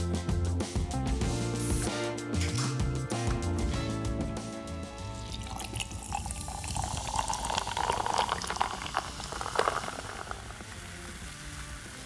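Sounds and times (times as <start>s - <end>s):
soda pouring into a glass: 5.0s - 12.0s
crackling fizz: 5.1s - 12.0s.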